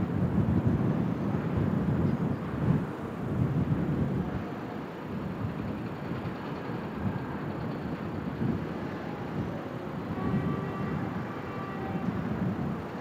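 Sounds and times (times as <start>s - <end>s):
distant harbour noise: 0.0s - 13.0s
wind on microphone: 0.0s - 13.0s.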